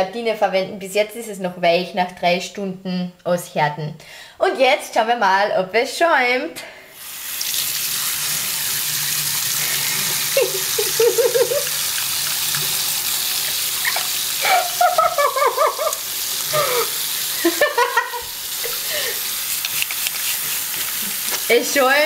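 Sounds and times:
water running from tap into sink: 0:07.0 - 0:22.0
hands lathering: 0:07.4 - 0:21.6
person's voice: 0:21.0 - 0:22.0.

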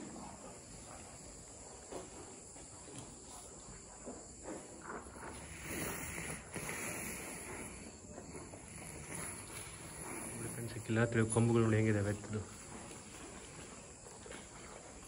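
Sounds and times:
faint footsteps: 0:00.0 - 0:15.0
insect chirring: 0:04.3 - 0:14.6.

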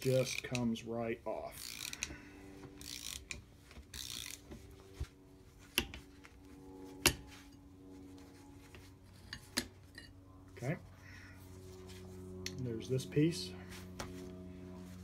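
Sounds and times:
ratchet rasping: 0:01.5 - 0:02.1, 0:02.8 - 0:04.5.

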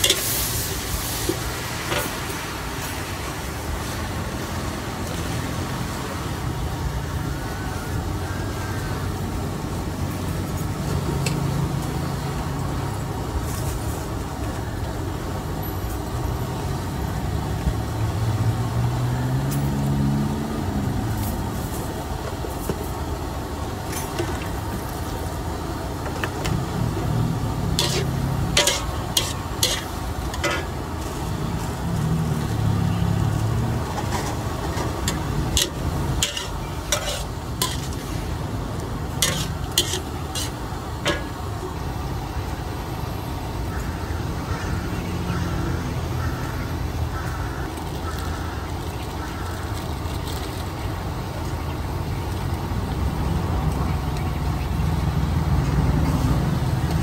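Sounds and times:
spatula scraping and clanking on pan: 0:00.0 - 0:02.2, 0:27.7 - 0:30.8, 0:33.9 - 0:38.2, 0:39.2 - 0:41.4
cabbage sizzling in a wok: 0:00.0 - 0:05.2, 0:26.4 - 0:32.6, 0:34.3 - 0:41.4
passing vehicle engines: 0:15.4 - 0:48.7, 0:51.9 - 0:57.0.

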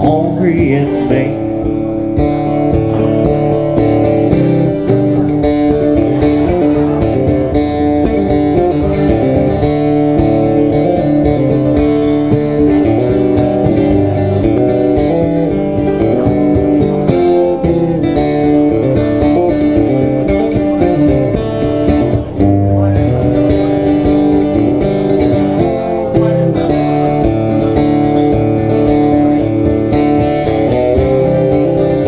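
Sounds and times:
acoustic guitar strumming chords: 0:00.0 - 0:32.0.

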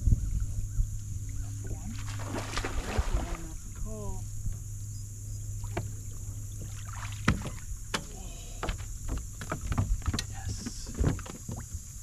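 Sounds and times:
steady low hum: 0:00.0 - 0:12.0
knocks and clicks on boat deck: 0:05.6 - 0:12.0.

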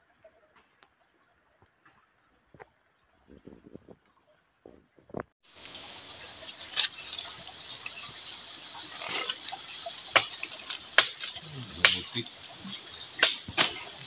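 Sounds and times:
high-pitched insect chorus: 0:05.5 - 0:14.0.

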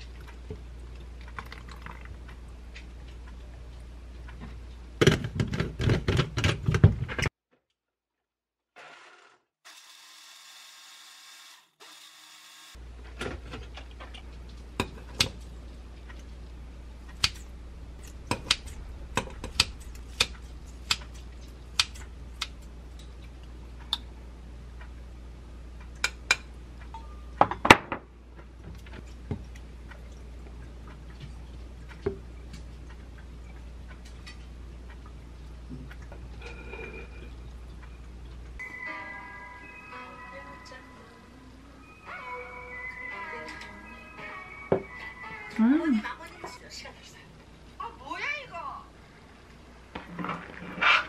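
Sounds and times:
steady low hum: 0:12.8 - 0:27.4.

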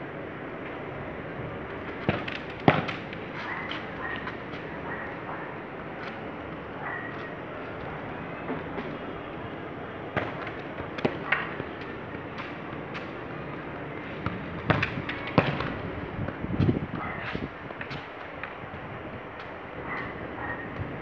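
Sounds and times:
football thudding on foot: 0:10.1 - 0:18.9.

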